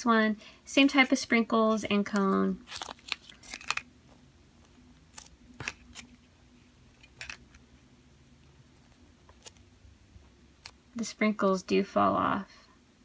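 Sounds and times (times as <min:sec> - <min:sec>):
wrapper rustling: 0:02.0 - 0:03.9
plastic wrapper clicks and crinkles: 0:02.1 - 0:03.9, 0:07.0 - 0:07.6.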